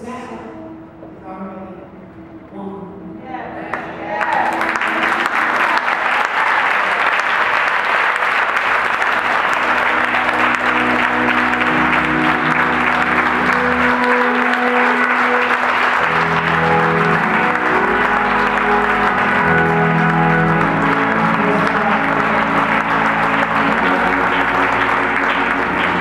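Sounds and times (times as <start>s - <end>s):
audience applauding: 3.7s - 26.0s
instrumental music with bass line: 9.1s - 26.0s.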